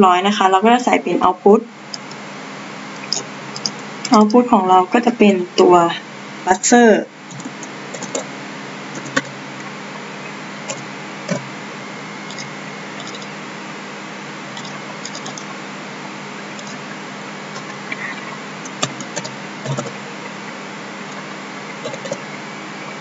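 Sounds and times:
low hum: 1.8s - 23.0s
computer keyboard keystrokes: 3.0s - 3.8s, 7.3s - 8.2s, 9.0s - 9.3s, 12.3s - 13.3s, 14.6s - 15.5s, 16.6s - 16.8s, 18.7s - 19.9s, 21.9s - 22.2s.

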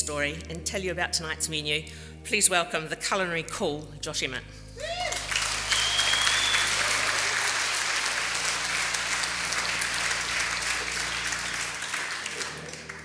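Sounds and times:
audience applauding: 4.8s - 13.0s
high whistle: 5.1s - 7.2s.

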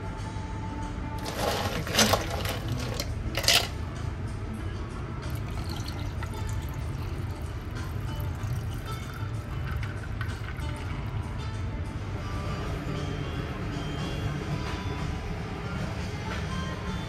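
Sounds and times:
ice cubes rattling into glass: 1.2s - 3.8s, 5.4s - 7.5s, 8.2s - 11.0s
tap water running into glass: 5.3s - 11.2s.

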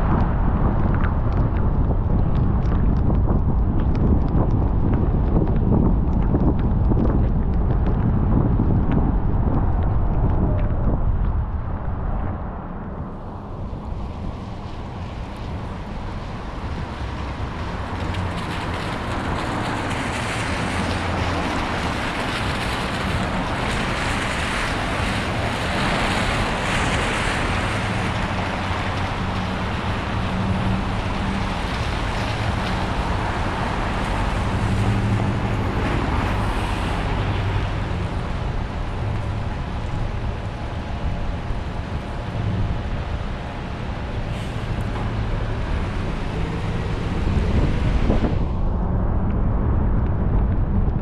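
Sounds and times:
low engine hum: 0.0s - 51.0s
tyres on wet road: 0.0s - 51.0s.

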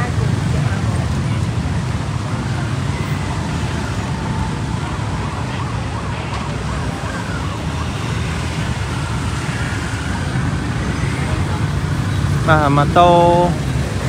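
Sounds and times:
motor scooters riding past: 0.0s - 14.0s
street traffic rumble: 0.0s - 14.0s
faint wavering siren: 1.8s - 12.3s.

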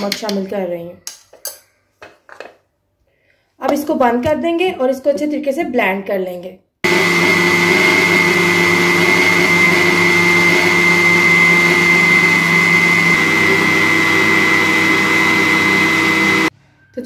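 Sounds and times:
blender motor whining: 6.8s - 16.5s.

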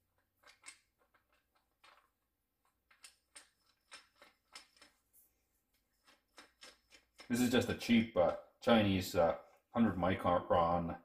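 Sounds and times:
faint clicks and rustles of handling: 0.0s - 7.7s.

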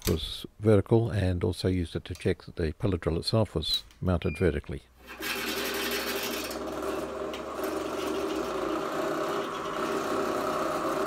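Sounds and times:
pillar drill motor whining: 5.1s - 11.0s
drill bit drilling aluminium: 5.3s - 11.0s.

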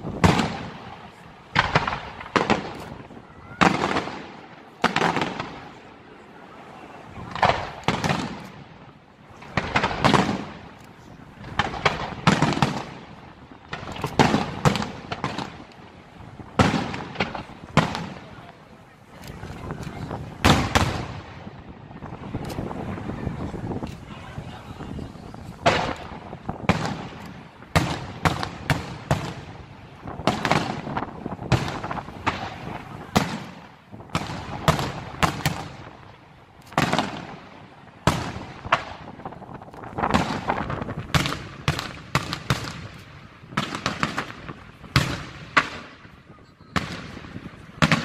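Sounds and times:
firework shells bursting: 9.4s - 18.3s, 25.5s - 46.1s.

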